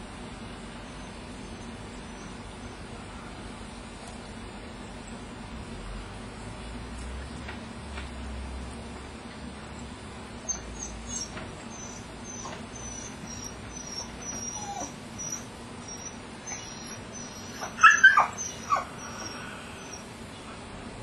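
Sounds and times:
dog whining: 10.4 - 20.1
dog whimpering: 10.5 - 20.1.

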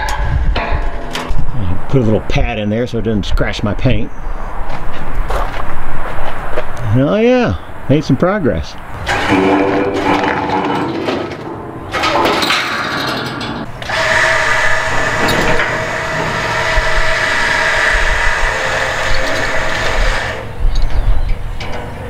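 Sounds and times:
uneven work noise: 8.9 - 22.0
handheld power tool running: 13.8 - 20.4.

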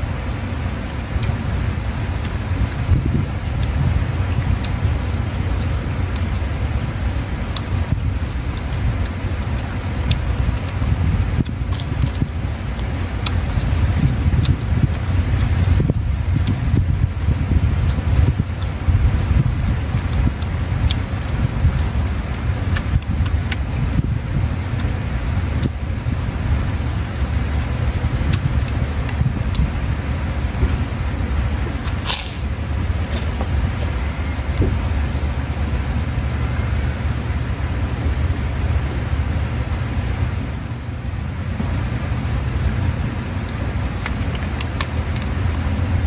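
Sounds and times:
low outdoor rumble: 0.0 - 46.0
crunching of eating by hand: 8.5 - 15.7, 31.7 - 34.9.

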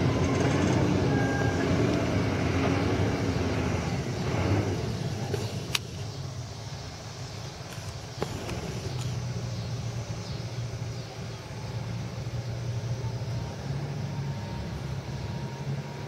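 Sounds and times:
diesel engine rumbling: 0.0 - 16.0
road noise: 0.0 - 16.0.

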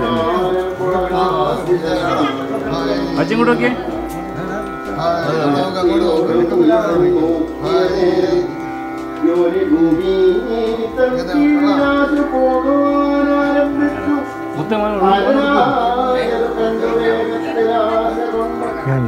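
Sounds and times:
gliding melody over held notes: 0.0 - 19.0.

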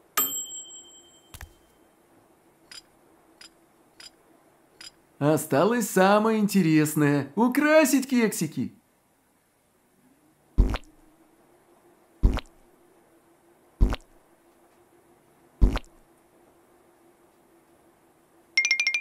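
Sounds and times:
faint steady hum: 0.0 - 18.6
cartoon squishy plops: 10.6 - 11.0, 12.2 - 12.6, 13.8 - 14.2, 15.6 - 16.0.

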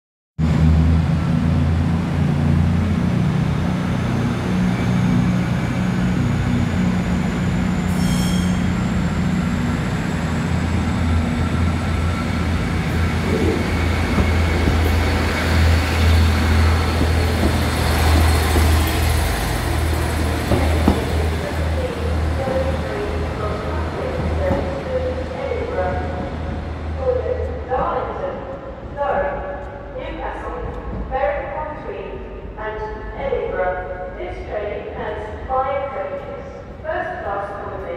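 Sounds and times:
diesel train engine running: 0.4 - 27.7
train wheel and rail noise: 0.4 - 37.9.

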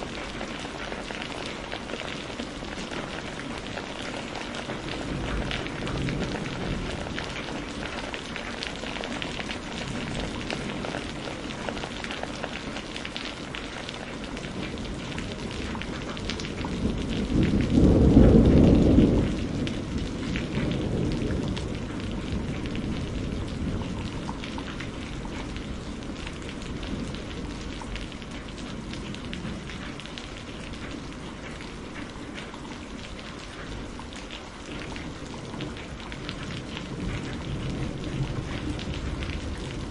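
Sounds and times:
steady rain falling: 0.0 - 39.9
rolling thunder: 3.0 - 11.7, 14.5 - 32.0, 34.7 - 39.9.

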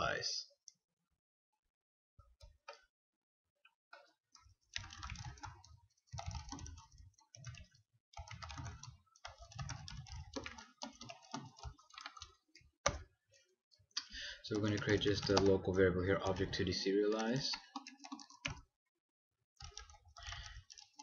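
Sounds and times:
keyboard typing: 4.0 - 13.2, 14.0 - 18.7, 19.6 - 21.0.

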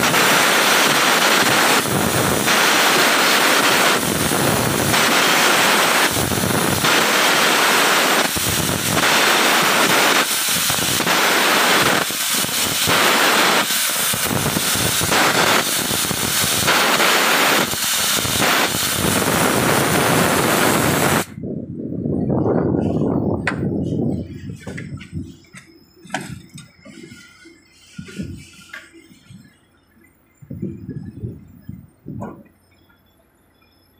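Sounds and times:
arc welding crackling hiss: 0.0 - 21.3.

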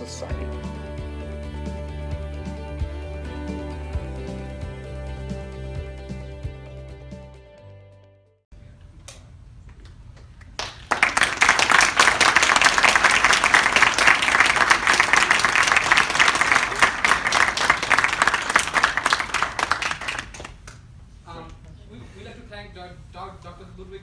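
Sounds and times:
audience applauding: 10.4 - 20.8.

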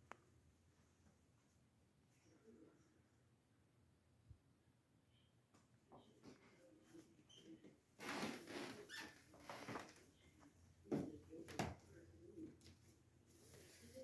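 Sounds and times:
rustling and handling noise: 8.0 - 14.0.

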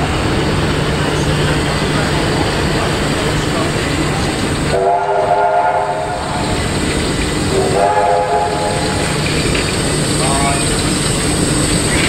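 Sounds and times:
carriages rumbling past: 0.0 - 12.0
steam locomotive whistle blasts: 4.7 - 6.3, 7.5 - 9.2.

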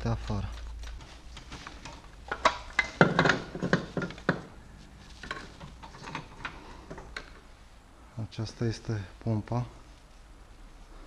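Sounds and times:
metal knocks and clatters: 0.8 - 7.4.

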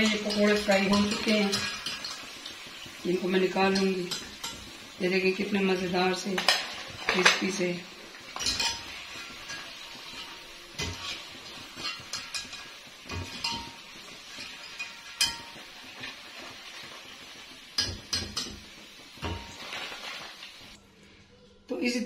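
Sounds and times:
skimmer clinking against a wok: 0.0 - 2.4, 3.5 - 4.8, 8.3 - 16.2
hot oil sizzling: 0.0 - 20.8.

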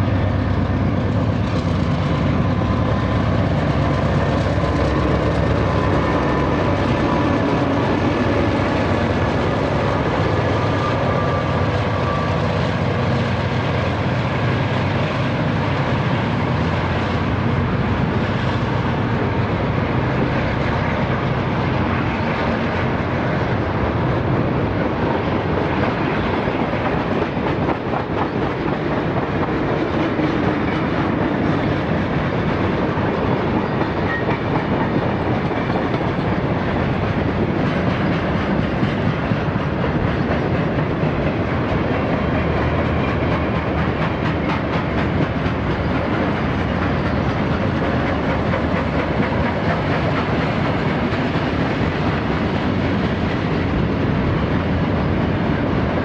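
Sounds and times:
freight train rumbling past: 0.0 - 56.0
wheels clicking over rail joints: 24.0 - 55.0.

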